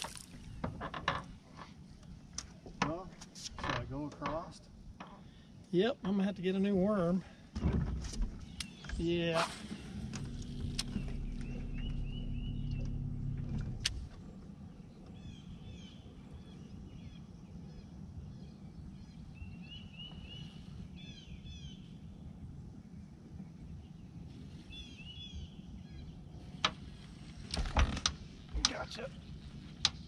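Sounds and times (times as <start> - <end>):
songbird chirping: 8.4 - 27.4
low motor hum: 8.4 - 30.0
motor stopping click: 10.0 - 14.2.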